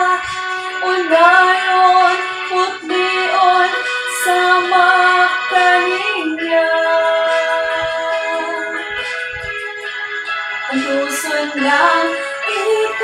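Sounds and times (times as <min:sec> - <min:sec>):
woman singing slowly: 0:10.7 - 0:13.0.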